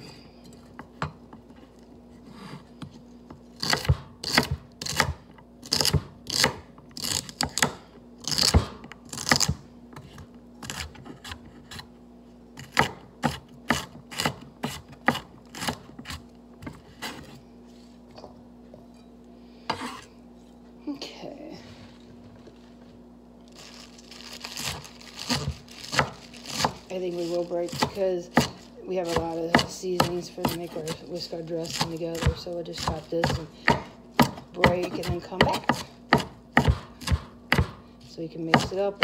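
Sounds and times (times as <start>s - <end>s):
knife chopping on cutting board: 3.6s - 11.9s, 12.6s - 17.4s, 24.6s - 31.0s, 31.6s - 37.8s, 38.4s - 39.0s.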